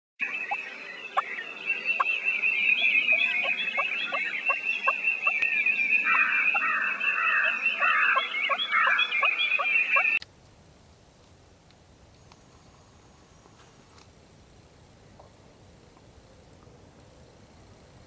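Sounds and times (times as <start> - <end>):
high-pitched chorus of chirps: 0.2 - 10.2
turkey gobbling: 2.8 - 5.4, 6.0 - 10.2.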